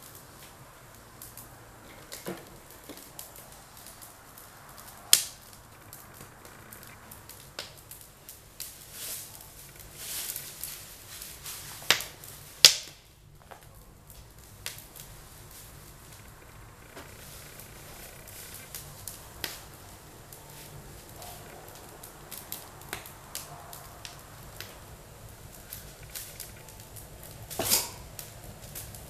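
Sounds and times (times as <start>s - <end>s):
sharp cracks of fire: 0.0s - 29.0s
wood fire crackling: 0.0s - 29.0s.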